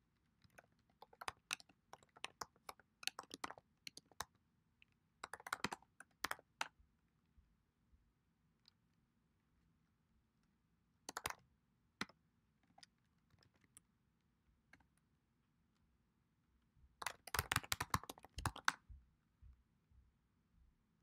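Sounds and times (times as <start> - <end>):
computer keyboard keystrokes: 0.4 - 4.3, 5.2 - 6.7, 11.1 - 11.4, 17.0 - 18.8.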